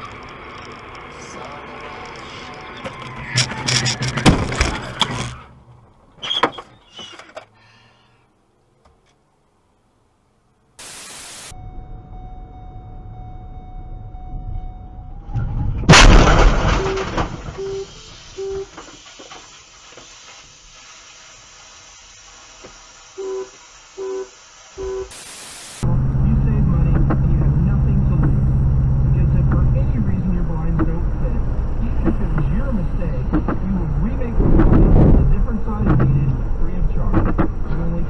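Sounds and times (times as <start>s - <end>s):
car collision crunch: 3.4s - 7.5s, 15.5s - 17.8s, 30.6s - 38.0s
short electronic beeps: 10.8s - 15.2s, 16.7s - 18.7s, 23.2s - 25.4s.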